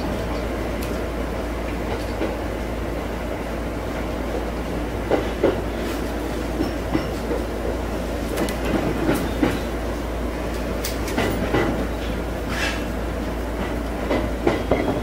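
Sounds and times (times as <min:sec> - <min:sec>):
train running rumble: 0:00.0 - 0:15.0
train wheel clicks and knocks: 0:01.7 - 0:02.5, 0:04.3 - 0:05.8, 0:06.4 - 0:09.8, 0:10.4 - 0:12.9, 0:13.5 - 0:15.0.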